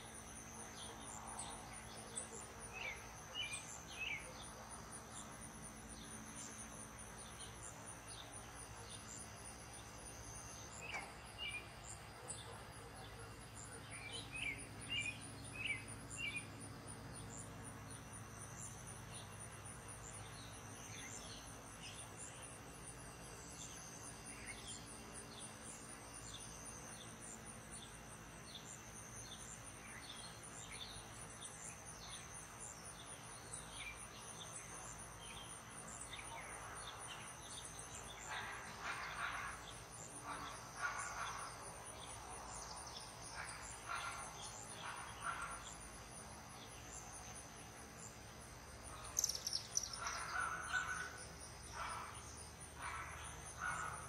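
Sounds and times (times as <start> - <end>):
insects trilling: 0.0 - 54.0
bird chirps: 49.0 - 51.2.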